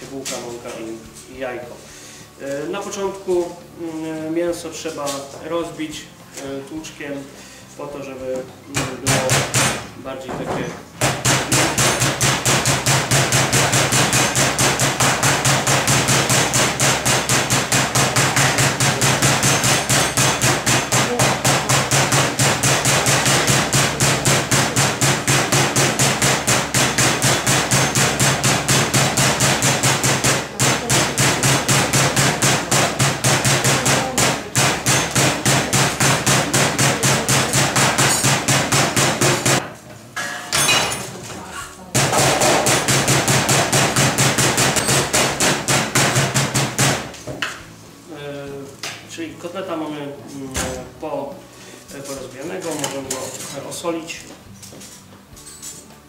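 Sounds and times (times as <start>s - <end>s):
mallet pounding meat on board: 8.8s - 9.9s, 11.0s - 39.7s, 42.0s - 47.3s.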